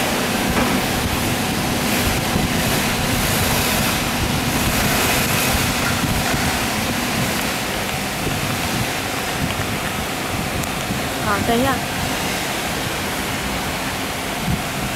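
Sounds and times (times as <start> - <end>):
loud rushing air: 0.0 - 14.9.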